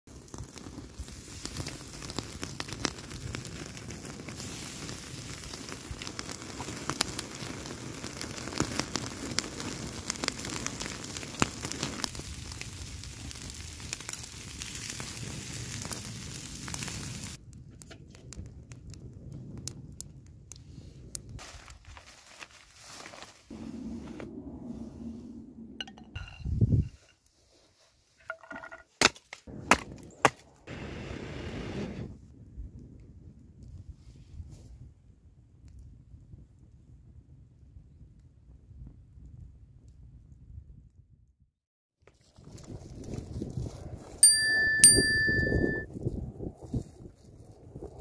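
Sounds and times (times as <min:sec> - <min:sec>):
campfire crackling and popping: 0:00.1 - 0:23.8, 0:29.0 - 0:30.9, 0:32.3 - 0:34.4, 0:35.4 - 0:38.3.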